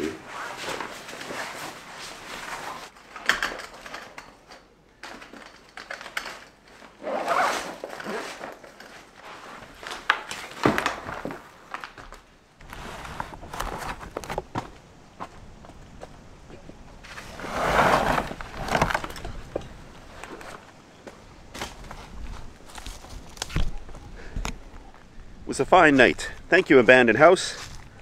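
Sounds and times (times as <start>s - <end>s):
fabric rustling and swishing: 0.0s - 3.0s
zipping: 6.8s - 9.7s, 17.1s - 19.1s.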